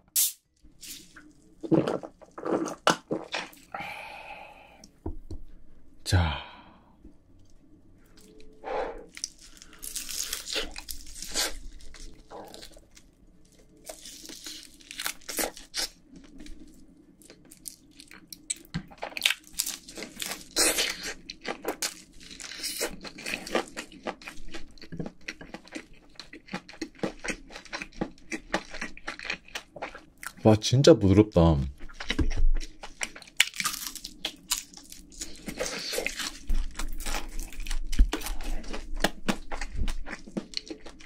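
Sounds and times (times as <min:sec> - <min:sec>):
chewing: 0:08.2 - 0:30.4, 0:31.8 - 0:41.0
crunching bites of fried chicken: 0:31.9 - 0:41.0.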